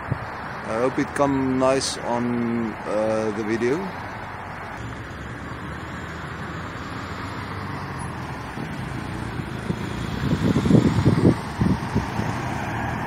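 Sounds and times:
wind buffeting microphone: 0:00.0 - 0:00.5, 0:04.8 - 0:13.0
car road and engine noise: 0:00.0 - 0:13.0.

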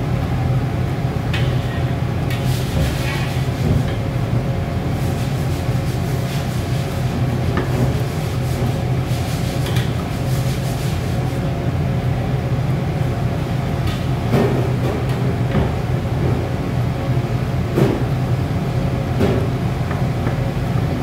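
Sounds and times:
gas burner rumbling: 0:00.0 - 0:21.0.

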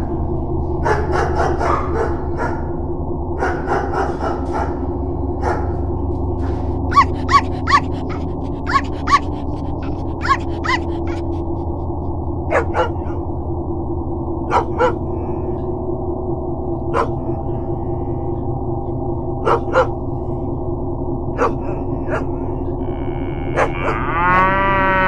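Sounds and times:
steady low hum: 0:00.0 - 0:25.0
dog barking: 0:00.8 - 0:02.8, 0:03.4 - 0:05.8, 0:06.9 - 0:11.6, 0:12.5 - 0:13.2, 0:14.5 - 0:15.1, 0:16.9 - 0:17.3, 0:19.4 - 0:20.0, 0:21.4 - 0:22.5, 0:23.5 - 0:24.1.

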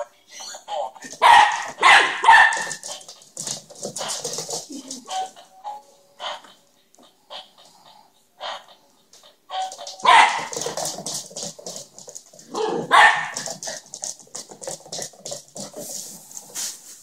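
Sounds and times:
small dog barking: 0:01.2 - 0:02.9, 0:09.5 - 0:10.6, 0:12.5 - 0:13.5.

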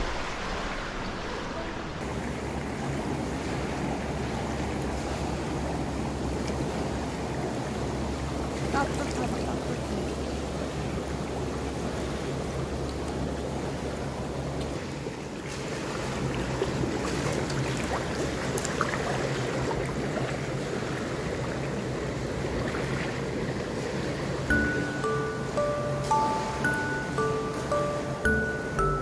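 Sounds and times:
low rumble: 0:00.0 - 0:02.1
rushing water: 0:00.0 - 0:29.0.

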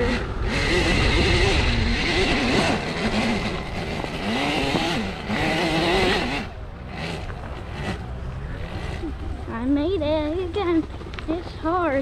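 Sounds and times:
wind rumble on microphone: 0:00.0 - 0:06.4
electric motor whining: 0:00.0 - 0:09.8.

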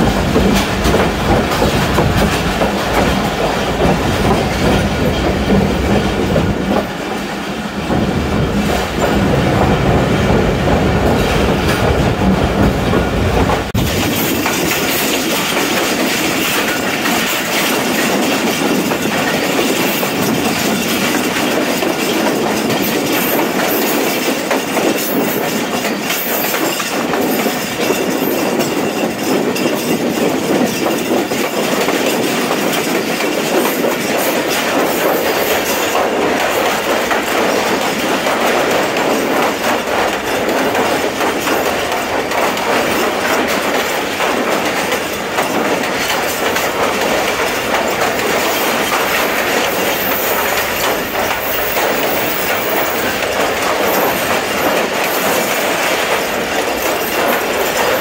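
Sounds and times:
train wheels clattering on rails: 0:00.0 - 0:58.0.

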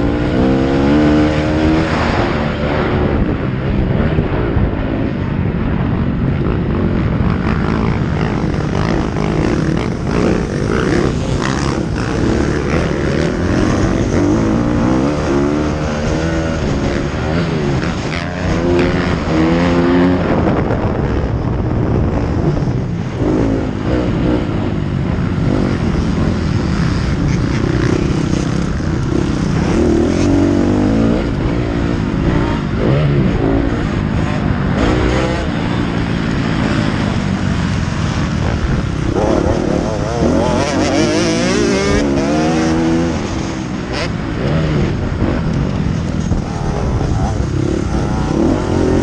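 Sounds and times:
motocross bike engine revving: 0:00.0 - 0:03.4, 0:06.4 - 0:21.0, 0:22.2 - 0:49.0.

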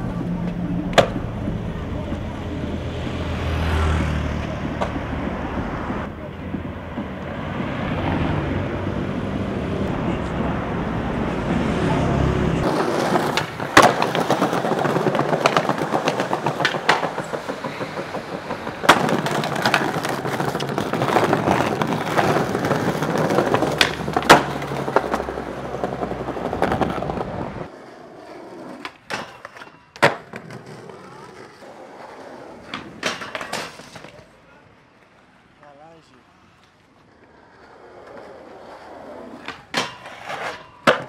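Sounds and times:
skateboard wheels rolling on pavement: 0:00.0 - 0:41.0
skateboard cracking on ground: 0:12.6 - 0:35.4, 0:36.5 - 0:41.0.

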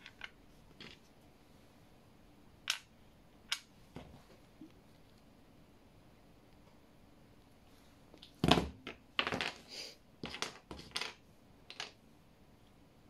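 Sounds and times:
plastic puzzle pieces clattering: 0:00.0 - 0:01.0, 0:08.9 - 0:12.0.

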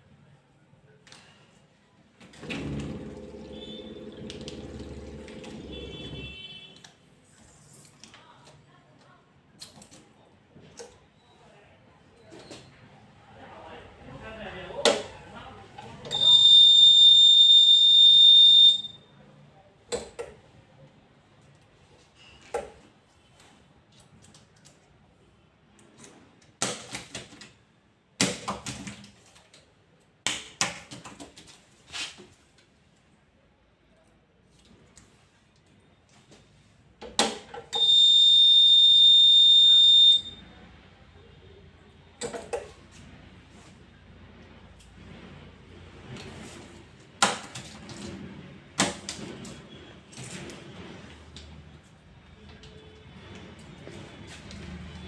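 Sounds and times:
high machine buzzer beep: 0:03.4 - 0:04.2, 0:16.1 - 0:19.0, 0:37.8 - 0:40.4.

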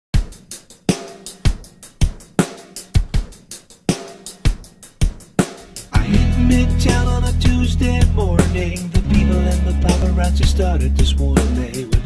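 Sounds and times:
snare and hi-hat hits: 0:00.2 - 0:12.0
bass drum: 0:05.4 - 0:12.0.

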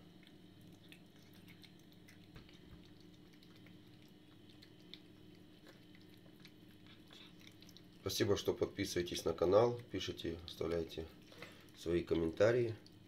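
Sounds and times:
cat chewing from a bowl: 0:00.0 - 0:13.0
low steady hum: 0:00.0 - 0:13.0.

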